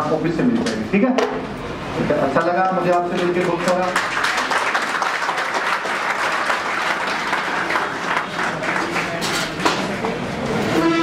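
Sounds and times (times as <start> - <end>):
crowd applauding: 2.8 - 10.2.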